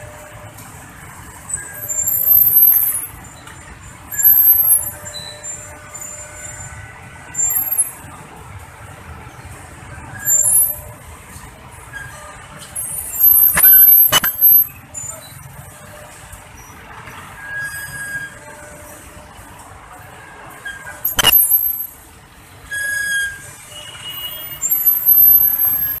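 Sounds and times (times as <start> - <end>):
brakes squealing: 0.0 - 26.0
road traffic: 0.0 - 26.0.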